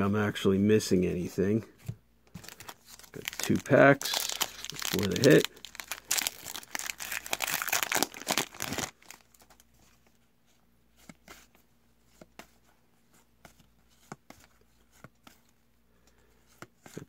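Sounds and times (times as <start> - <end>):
foil wrapper crinkling: 2.4 - 9.6.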